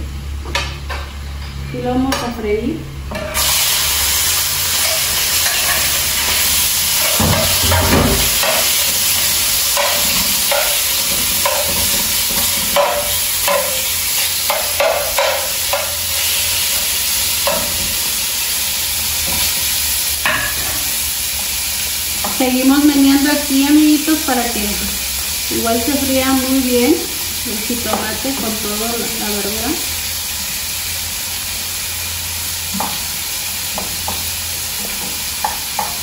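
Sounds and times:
shrimp sizzling in hot oil: 0:03.2 - 0:36.0
spatula scraping and tapping pan: 0:07.0 - 0:16.8, 0:33.7 - 0:36.0.

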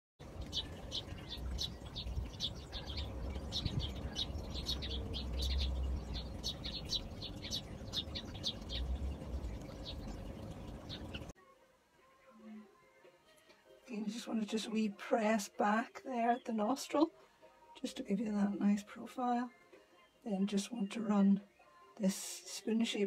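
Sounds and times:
birds chirping: 0:00.2 - 0:11.3
low rumble: 0:01.4 - 0:11.3.

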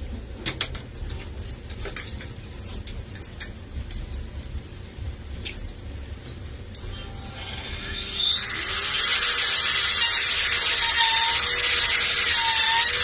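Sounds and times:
cnc router humming: 0:06.8 - 0:13.0.

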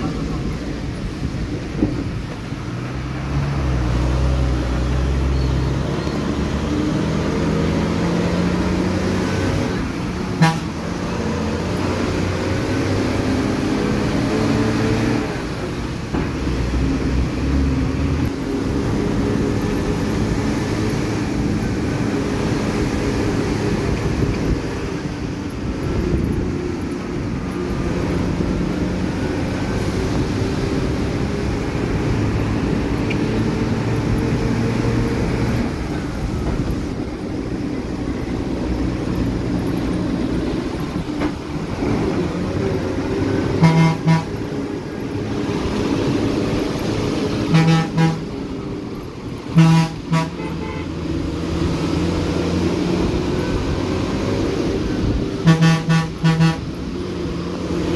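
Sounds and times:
bus engine running: 0:00.0 - 0:57.9
horn: 0:43.6 - 0:44.3, 0:47.5 - 0:48.2, 0:55.4 - 0:56.6.

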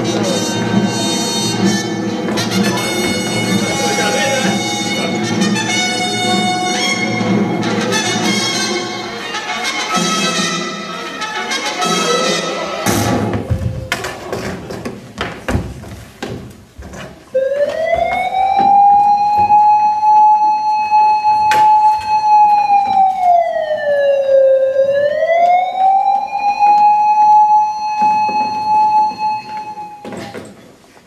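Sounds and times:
siren wailing: 0:17.4 - 0:30.2.

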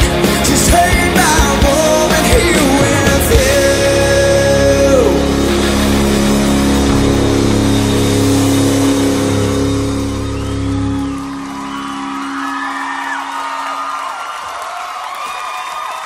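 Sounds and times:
bass: 0:00.0 - 0:14.0
rock song held chord: 0:00.0 - 0:14.5
short sliding guitar notes: 0:03.4 - 0:12.8.

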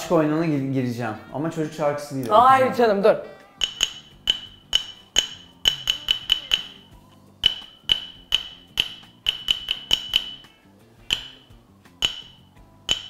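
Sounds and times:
toy xylophone notes: 0:03.6 - 0:13.0.

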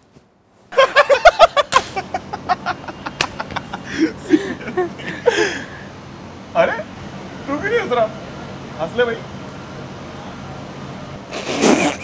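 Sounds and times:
young men laughing: 0:00.7 - 0:06.0
sharp smack: 0:01.7 - 0:02.0.

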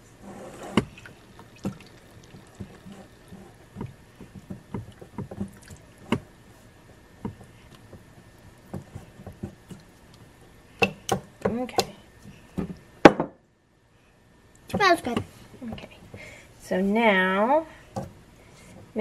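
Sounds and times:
thick mixture slopping: 0:00.8 - 0:11.3.

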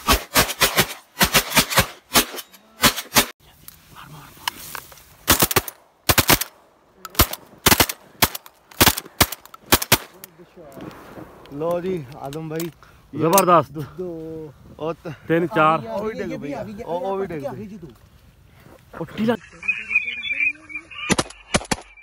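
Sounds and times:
shotguns firing: 0:00.0 - 0:03.3, 0:05.2 - 0:10.2.

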